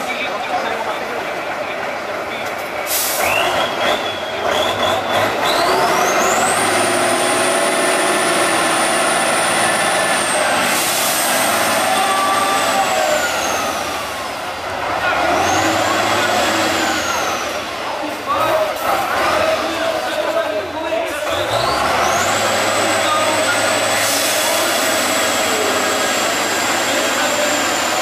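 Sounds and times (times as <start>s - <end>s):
truck engine under load: 0.0s - 28.0s.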